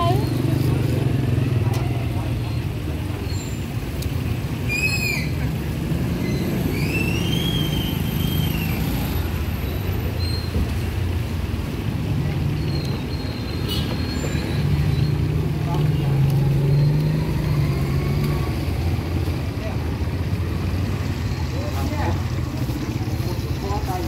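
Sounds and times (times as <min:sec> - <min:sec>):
traffic engine rumble: 0:00.0 - 0:24.0
high whistling sounds: 0:04.6 - 0:05.5, 0:06.2 - 0:09.0.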